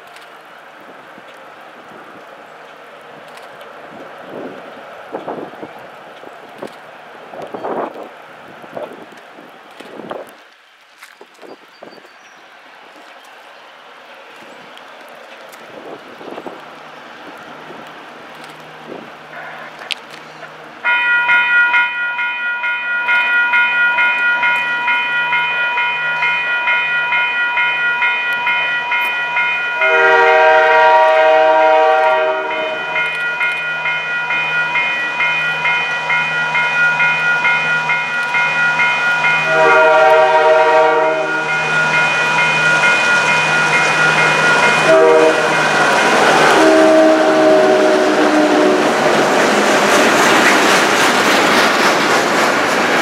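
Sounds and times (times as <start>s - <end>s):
train rumble and wheel noise: 0.0s - 53.0s
level-crossing warning bell ringing: 20.8s - 48.8s
locomotive air horn blasts: 29.7s - 33.2s, 39.4s - 41.7s, 44.3s - 49.0s.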